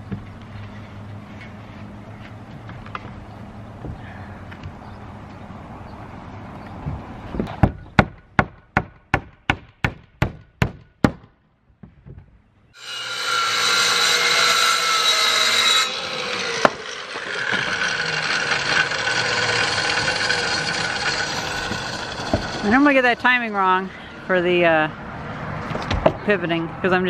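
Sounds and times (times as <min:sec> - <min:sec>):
sharp strokes on wood: 0:12.8 - 0:23.8
circular saw cutting wood: 0:12.8 - 0:24.5.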